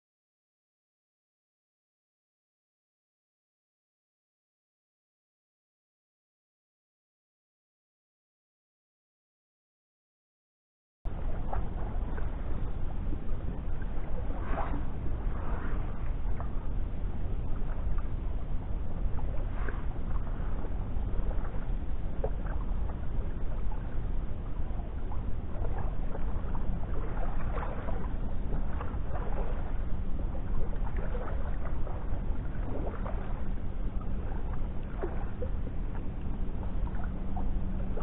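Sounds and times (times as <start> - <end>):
short splashes: 25.6 - 29.8, 34.2 - 36.1.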